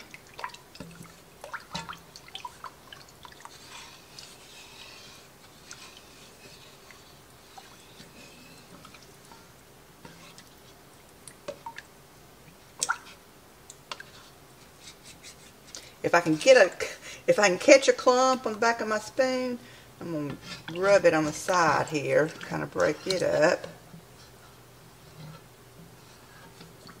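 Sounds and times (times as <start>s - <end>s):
sauce sloshing: 0.0s - 15.8s
spoon scraping pot: 0.8s - 9.0s, 10.0s - 10.8s, 20.1s - 26.8s.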